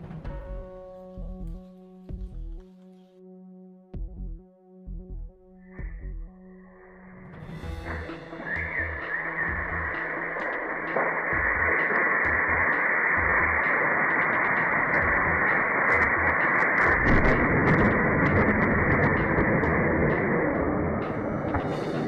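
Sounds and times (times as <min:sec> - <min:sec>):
electrical arc hissing and crackling: 0:07.8 - 0:19.2.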